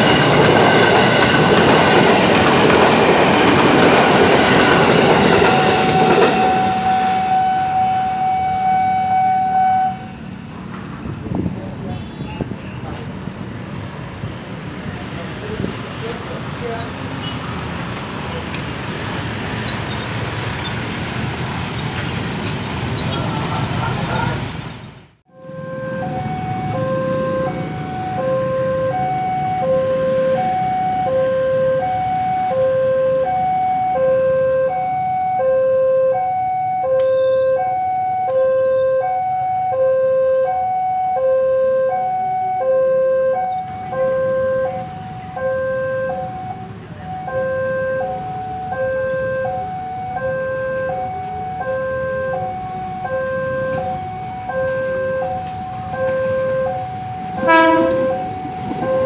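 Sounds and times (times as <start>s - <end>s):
level crossing alarm two-tone: 0.0s - 10.1s, 25.3s - 59.0s
motorbike and traffic hum: 9.8s - 34.7s.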